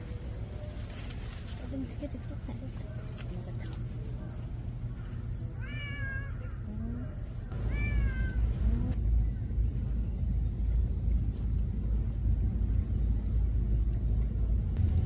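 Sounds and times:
cat meowing: 0:05.6 - 0:06.7, 0:07.6 - 0:09.0
low rumble: 0:06.4 - 0:15.0.

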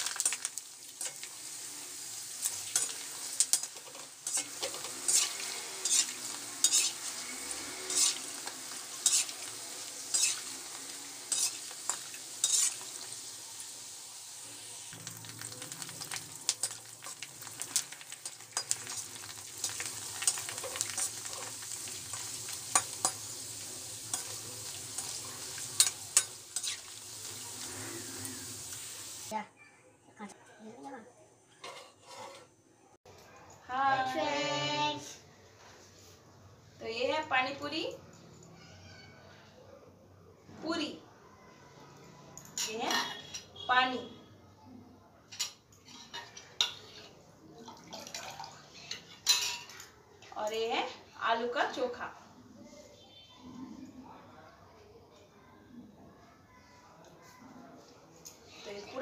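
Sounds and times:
dough sizzling in hot oil: 0:00.0 - 0:29.4, 0:45.4 - 0:52.1
metal spoon scraping pan: 0:02.4 - 0:13.2, 0:16.6 - 0:28.9, 0:31.6 - 0:32.6, 0:45.4 - 0:47.2.

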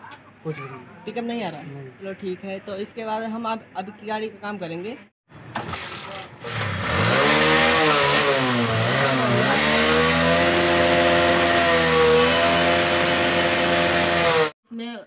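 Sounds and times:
motorcycle engine revving and idling: 0:06.0 - 0:14.6.

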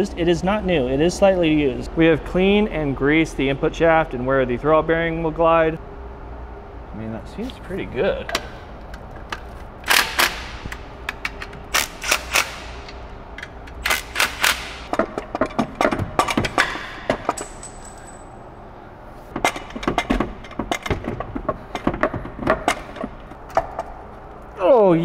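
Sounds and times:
impact wrench hammering: 0:09.8 - 0:17.9.

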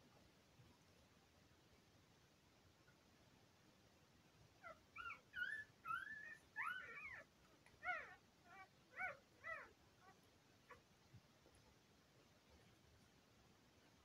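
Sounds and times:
puppies squealing: 0:04.6 - 0:09.7.

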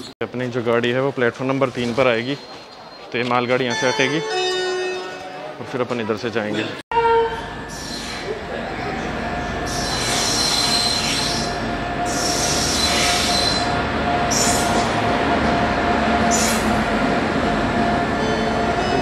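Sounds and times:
steady train whine: 0:06.9 - 0:19.0
train wheels rumbling on rail: 0:07.4 - 0:19.0
wheel screeching: 0:09.6 - 0:15.0.

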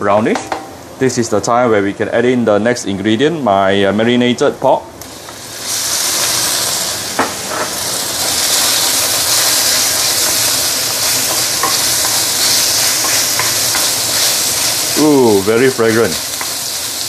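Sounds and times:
meat sizzling in hot oil: 0:05.0 - 0:17.0.

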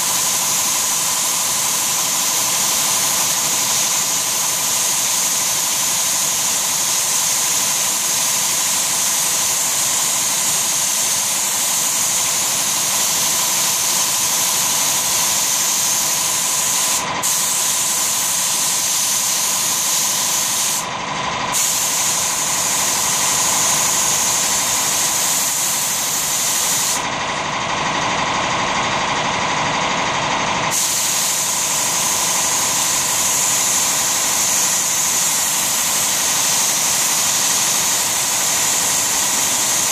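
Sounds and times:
spray gun hissing: 0:00.0 - 0:20.9, 0:21.5 - 0:27.1, 0:30.7 - 0:39.9.

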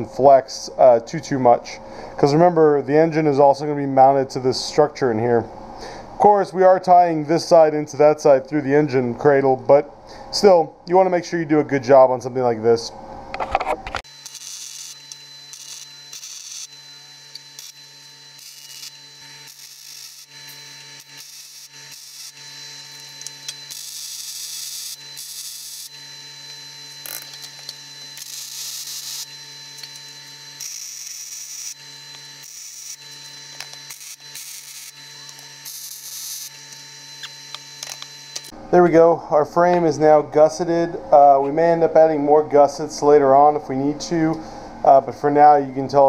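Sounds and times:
steady hum: 0:00.0 - 0:46.0
welding arc crackling and hissing: 0:13.9 - 0:38.5.

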